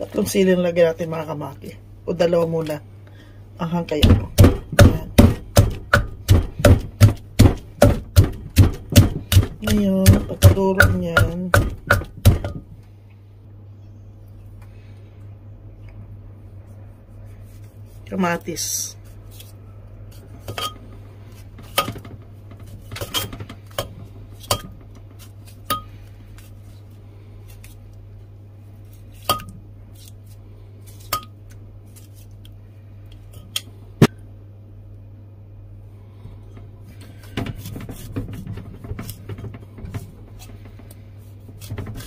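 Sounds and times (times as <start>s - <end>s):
steady low hum: 0.0s - 42.0s.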